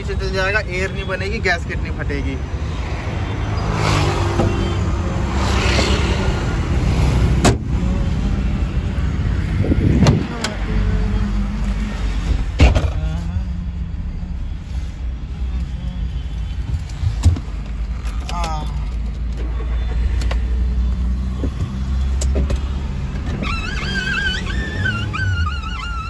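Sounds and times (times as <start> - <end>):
car engine humming: 2.0 - 26.0
car door slamming shut: 7.4 - 7.7.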